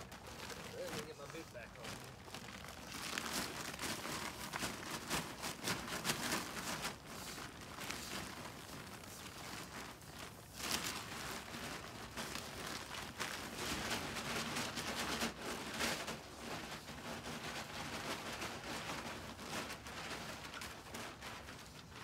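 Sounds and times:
straw rustling and crackling: 0.0s - 22.0s.

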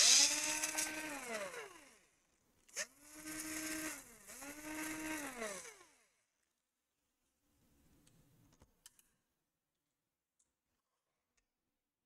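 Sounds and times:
electric screwdriver motor whine: 0.0s - 2.1s, 2.7s - 6.0s.

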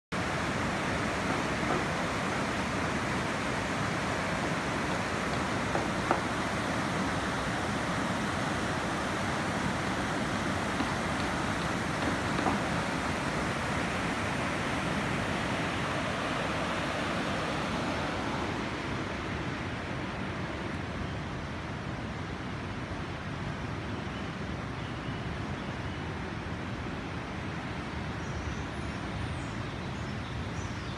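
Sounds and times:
river rushing in flood: 0.2s - 28.2s.

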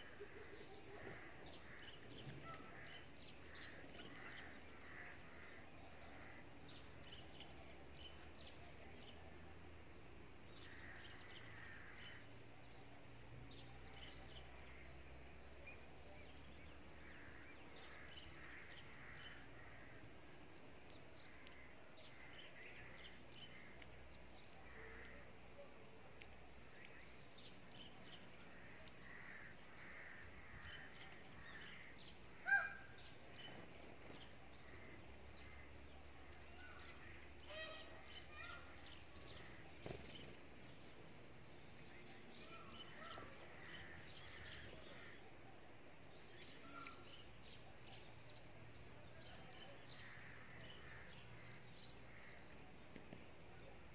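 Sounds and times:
small birds twittering: 0.0s - 53.9s.

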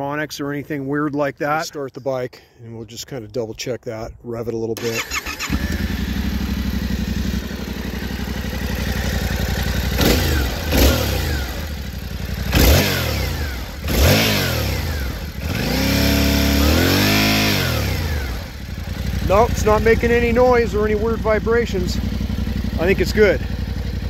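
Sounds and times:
motorcycle engine idling and revving: 4.8s - 24.0s.

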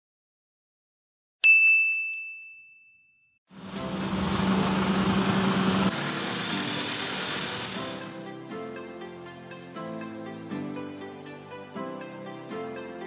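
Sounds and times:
bright bell ding: 1.4s - 3.4s.

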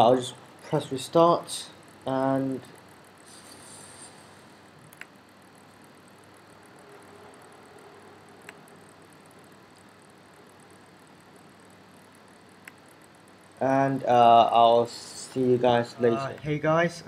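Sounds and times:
faint steady hiss: 0.0s - 17.0s
short sharp pointer clicks: 12.6s - 13.1s.

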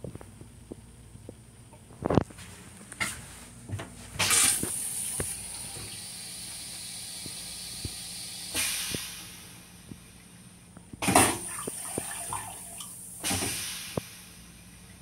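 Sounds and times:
toilet flushing water rush: 4.2s - 9.8s, 11.0s - 14.5s.

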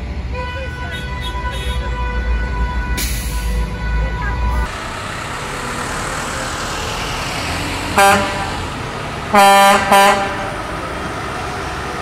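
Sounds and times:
traffic driving past: 0.0s - 12.0s
vehicle horn honking: 0.3s - 4.7s, 8.0s - 8.5s, 9.3s - 10.6s.

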